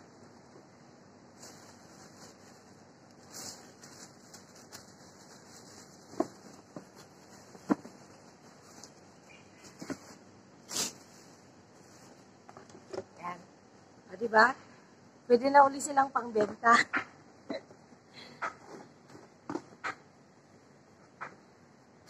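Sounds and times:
plastic bag rustling: 1.3s - 12.3s.

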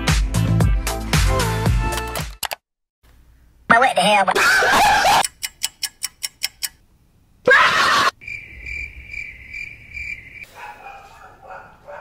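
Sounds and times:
sharp clicks: 5.2s - 6.8s
crickets chirping: 8.2s - 10.7s.

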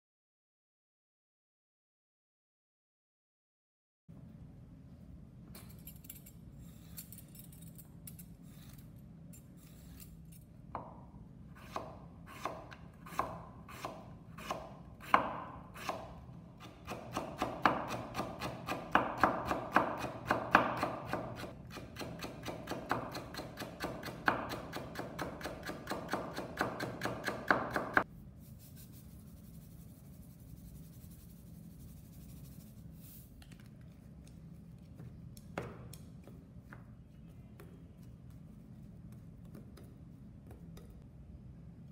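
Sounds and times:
knife chopping on wooden board: 11.6s - 28.0s.

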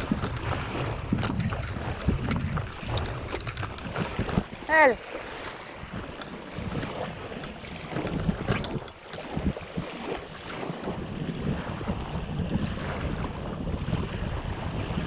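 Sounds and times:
light knocks and splashes: 0.0s - 10.9s
water lapping against kayak: 0.0s - 15.0s
wind buffeting microphone: 0.0s - 15.0s.

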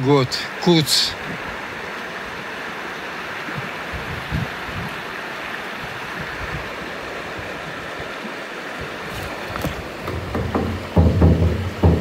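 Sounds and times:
river water rushing: 0.0s - 12.0s
soft low thumps: 9.6s - 12.0s.

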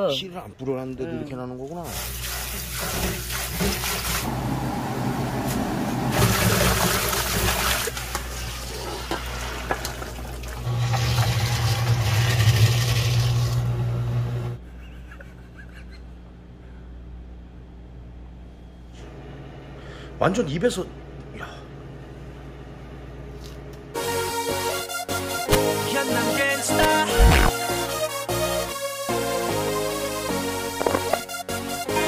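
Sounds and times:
fish-scaling machine humming: 3.8s - 14.5s, 27.0s - 27.6s
tap water running into steel bowl: 6.1s - 13.2s.

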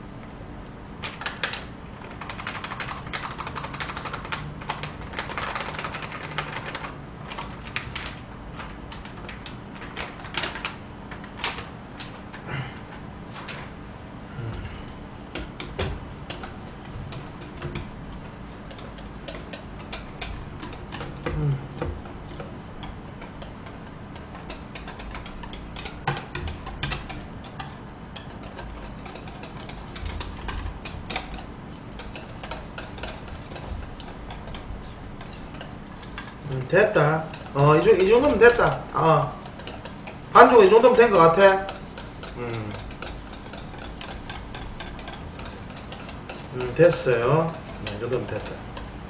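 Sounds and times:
whisk clicking in metal bowl: 15.3s - 49.0s.

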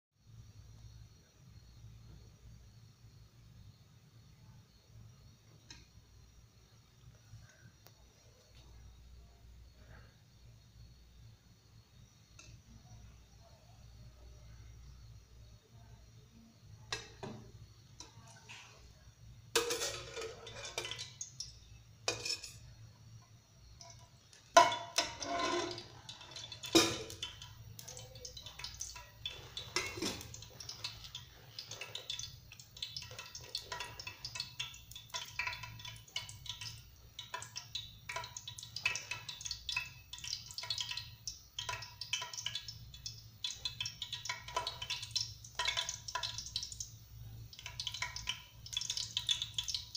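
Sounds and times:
ladle clinking against metal pot: 19.6s - 21.1s, 22.0s - 22.6s, 24.6s - 27.3s
oil crackling and spitting: 23.9s - 46.9s.

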